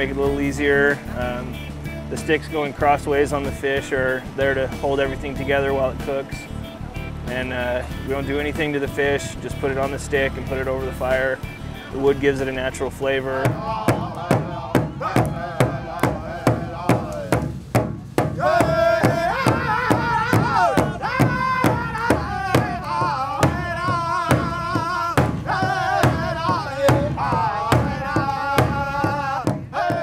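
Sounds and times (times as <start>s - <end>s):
men singing together: 13.0s - 17.6s, 18.3s - 30.0s
large hand drum beating: 13.4s - 30.0s.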